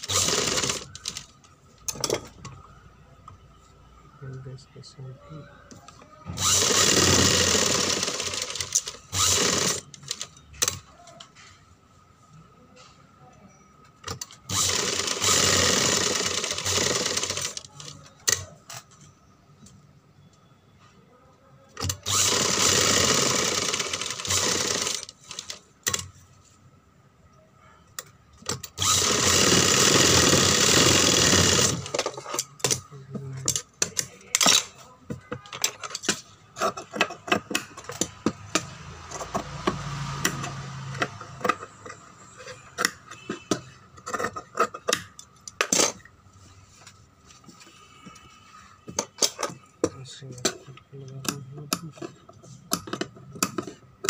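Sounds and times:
sewing machine stitching: 0:00.0 - 0:01.3, 0:06.4 - 0:10.8, 0:14.1 - 0:18.5, 0:21.8 - 0:26.1, 0:28.5 - 0:32.8.

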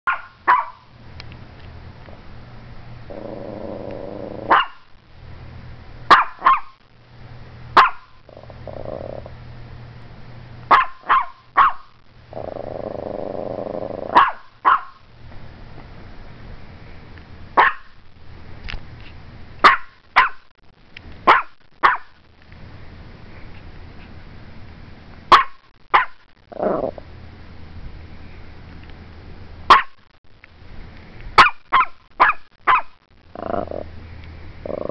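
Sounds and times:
small dog barking in sharp yaps: 0:00.1 - 0:00.9, 0:04.5 - 0:04.9, 0:06.1 - 0:06.8, 0:07.8 - 0:08.1, 0:10.7 - 0:12.0, 0:14.2 - 0:15.0, 0:17.6 - 0:18.0, 0:19.6 - 0:20.4, 0:21.3 - 0:22.2, 0:25.3 - 0:26.2, 0:29.7 - 0:30.0, 0:31.4 - 0:33.0
dog growling: 0:03.1 - 0:04.6, 0:08.2 - 0:09.4, 0:12.3 - 0:14.2, 0:26.5 - 0:27.1, 0:33.3 - 0:33.9, 0:34.6 - 0:34.9.

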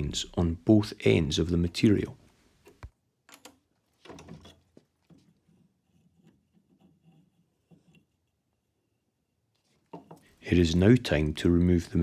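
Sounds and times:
tools tapping on wooden workbench: 0:09.9 - 0:10.3.

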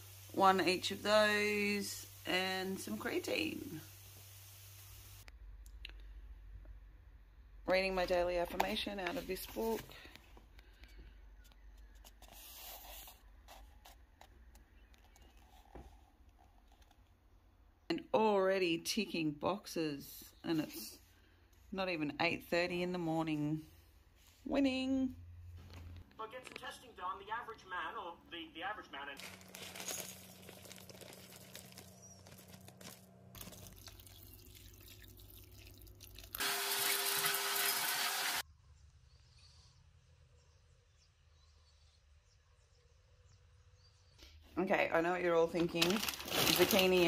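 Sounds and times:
book handling rustle: 0:08.9 - 0:10.0, 0:11.8 - 0:17.0, 0:29.2 - 0:33.7, 0:45.6 - 0:47.0
water tap running: 0:33.4 - 0:38.4.

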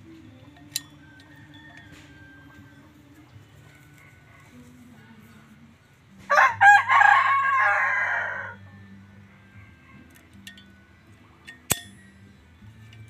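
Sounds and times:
rooster crowing: 0:01.0 - 0:05.4, 0:06.3 - 0:08.6
sharp click: 0:11.5 - 0:12.1.

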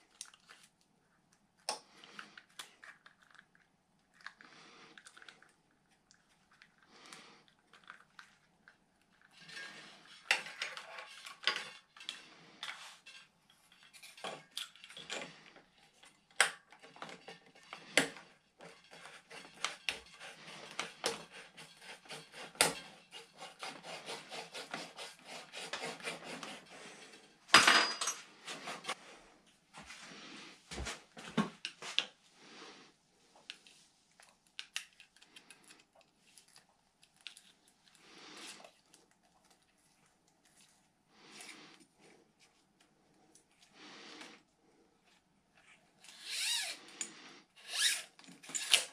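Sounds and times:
metal tools clicking and scraping: 0:27.1 - 0:29.0.

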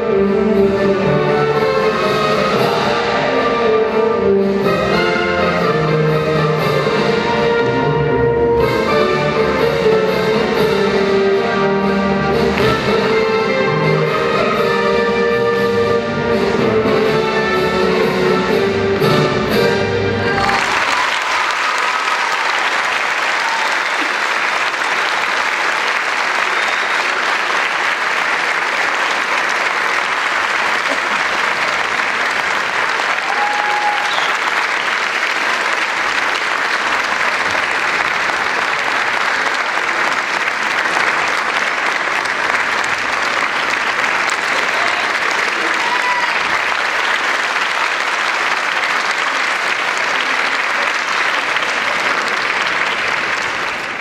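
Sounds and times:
audience applauding: 0:20.2 - 0:54.0.

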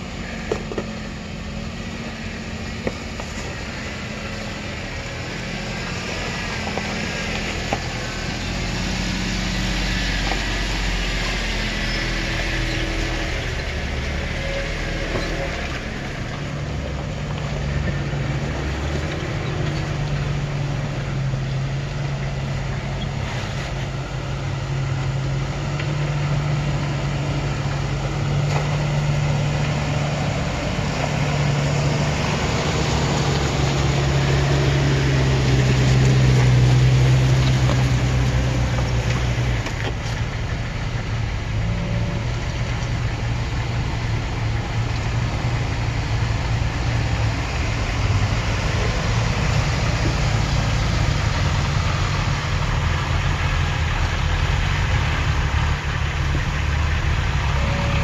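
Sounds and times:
off-road engines at low revs: 0:00.0 - 0:58.0.

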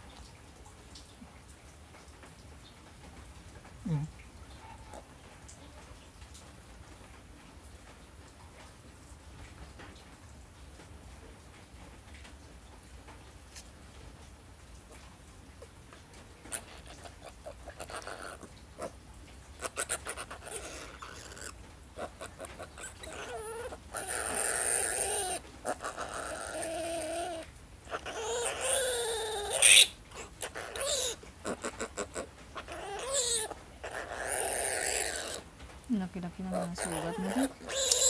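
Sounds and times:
piglet squealing: 0:16.5 - 0:19.0, 0:19.6 - 0:35.5, 0:36.5 - 0:38.0.

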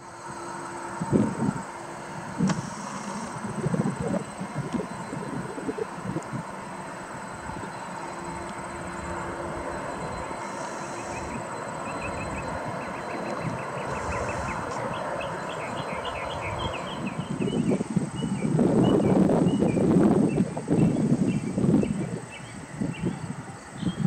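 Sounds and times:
distant jet engines rumbling: 0:00.0 - 0:24.0
loud irregular noise: 0:00.0 - 0:24.0
bird chirps: 0:09.8 - 0:24.0.

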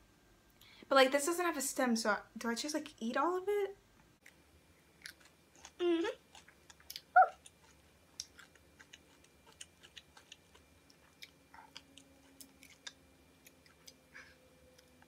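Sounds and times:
mouth chewing crunches: 0:04.2 - 0:15.0.

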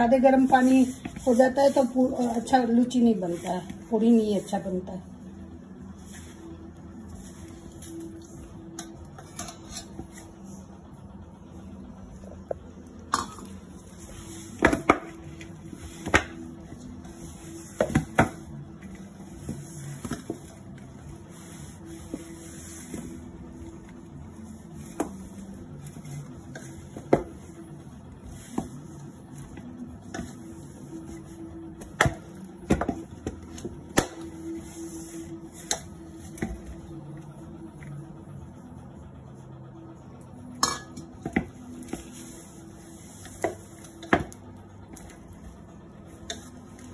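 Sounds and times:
metal bowl knocking: 0:40.6 - 0:41.5.

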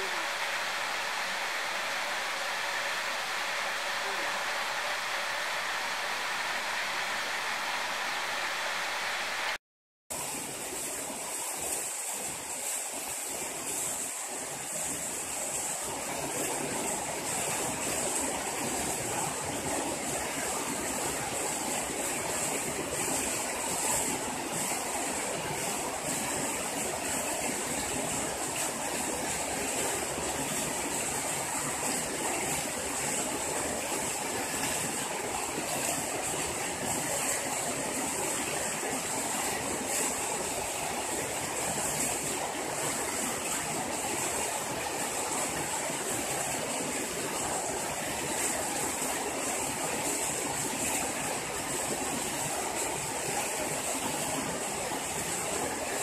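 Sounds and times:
high hiss: 0:00.0 - 0:09.6
running water: 0:00.0 - 0:56.0.

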